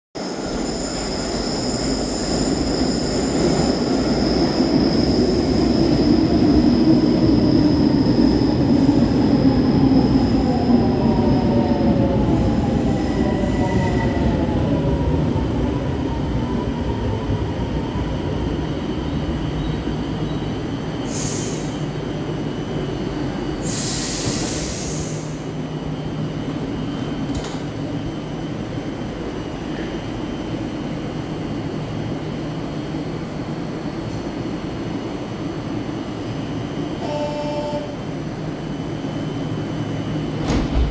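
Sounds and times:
train wheels squealing: 0.2 - 6.0
train braking whine: 0.2 - 14.7
train doors hissing: 21.0 - 22.0, 23.6 - 25.6, 40.3 - 40.9.

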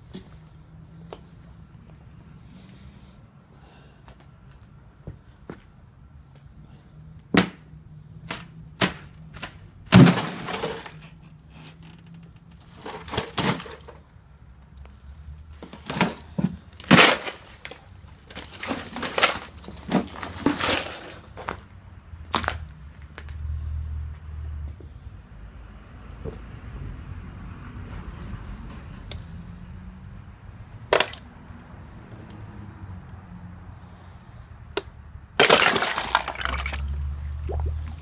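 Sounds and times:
thin ice cracking and crunching: 35.4 - 36.9.

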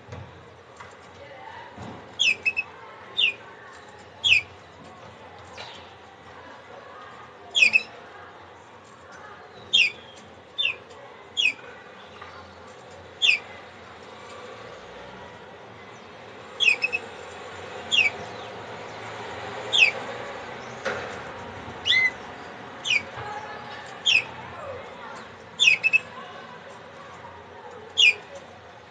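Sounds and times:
canary call notes: 2.2 - 3.4, 4.2 - 4.5, 7.6 - 8.0, 9.7 - 10.8, 11.4 - 11.6, 13.2 - 13.5, 16.6 - 17.2, 17.8 - 18.4, 19.6 - 20.1, 21.8 - 22.2, 22.8 - 24.5, 25.5 - 26.2, 28.0 - 28.3.

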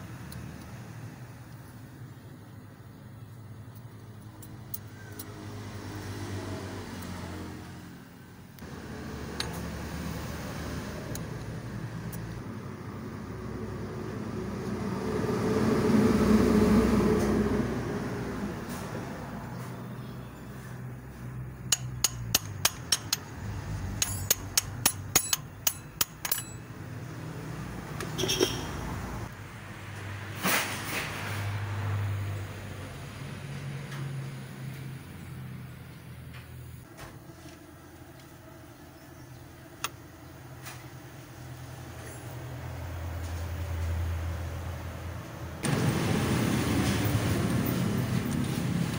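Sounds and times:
vehicle passing: 5.1 - 39.4, 40.1 - 48.9
hand tools clicking: 21.6 - 23.4, 24.0 - 26.7.

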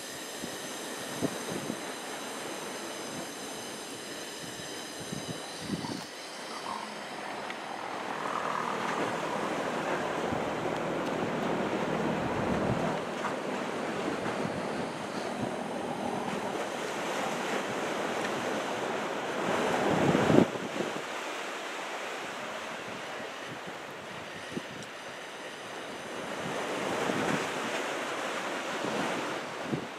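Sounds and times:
surf washing against shore: 0.0 - 29.9
wind buffeting microphone: 0.4 - 18.2, 19.4 - 21.1.

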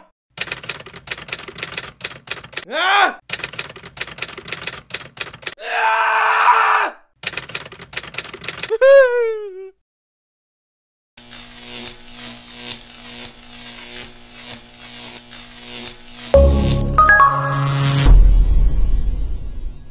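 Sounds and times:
typewriter keys clacking: 0.4 - 2.7, 3.3 - 5.6, 7.2 - 8.7.

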